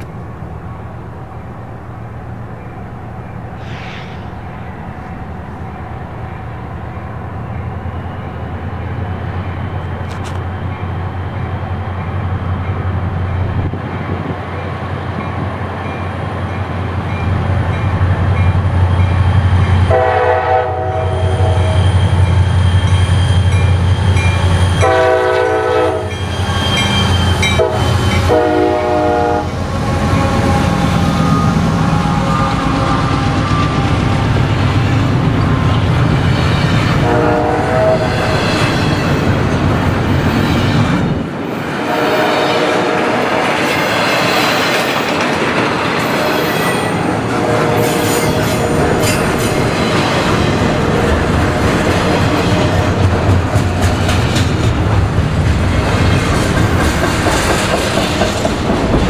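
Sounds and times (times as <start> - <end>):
freight train rumbling past: 0.0 - 59.0
locomotive air horn: 19.8 - 21.9, 24.8 - 34.2, 37.0 - 38.4, 41.8 - 43.3, 47.3 - 49.2.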